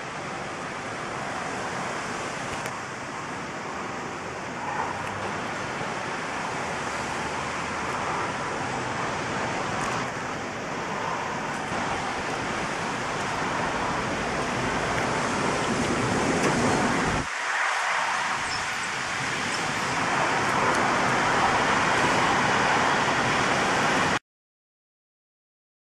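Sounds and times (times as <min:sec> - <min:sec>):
wind and rain rushing: 0:00.0 - 0:24.2.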